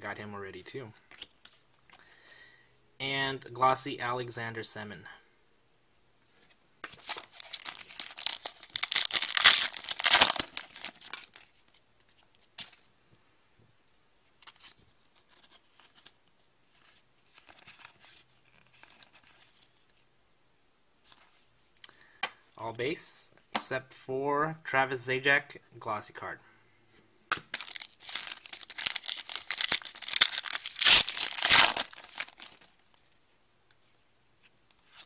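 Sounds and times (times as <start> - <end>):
cards rustling and clicking: 6.8 - 12.8, 16.8 - 19.8, 27.3 - 33.2
foil pack tearing and crinkling: 7.0 - 11.4, 27.5 - 32.8.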